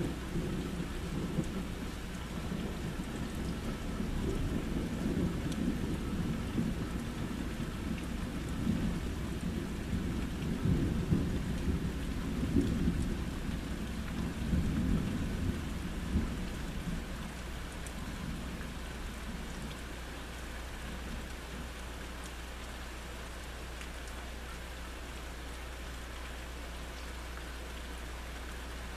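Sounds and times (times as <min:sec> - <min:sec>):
thunder rumbling: 0:00.0 - 0:17.3
steady rain: 0:00.0 - 0:28.9.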